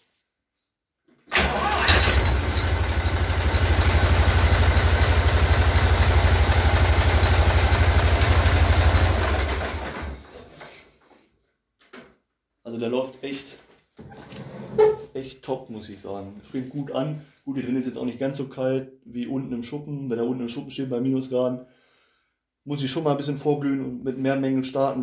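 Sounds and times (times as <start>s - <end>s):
tractor diesel engine starting: 1.3s - 10.4s
diesel engine idling: 1.4s - 10.0s.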